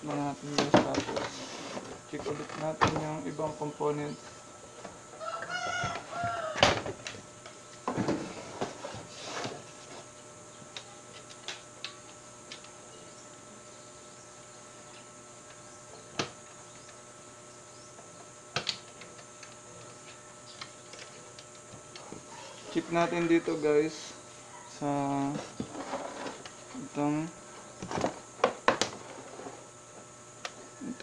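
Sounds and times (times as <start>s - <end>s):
scraping and handling noises: 0.1s - 3.2s, 7.9s - 10.2s, 25.0s - 26.9s, 27.5s - 30.1s.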